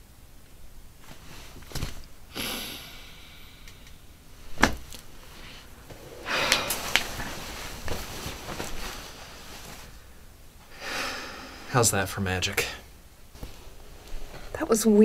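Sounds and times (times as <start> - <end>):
rustling: 0.9 - 2.3, 3.7 - 10.4, 13.2 - 14.8
breathy rush: 2.3 - 4.0, 5.2 - 11.9.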